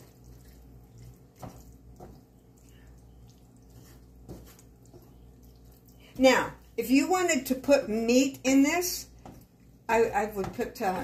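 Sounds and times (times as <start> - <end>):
spatula scraping sauce in skillet: 0.0 - 6.7
low steady hum: 0.0 - 11.0.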